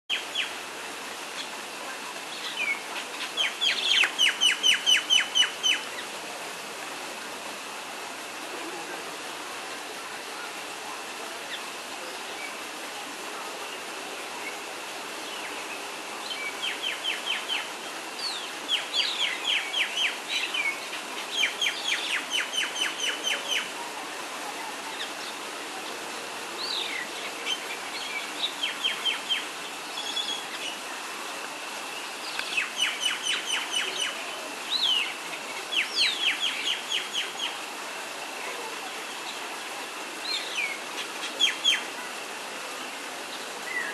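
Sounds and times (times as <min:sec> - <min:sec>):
steady background hiss: 0:00.1 - 0:43.9
small birds chirping: 0:02.2 - 0:06.1, 0:32.0 - 0:37.6.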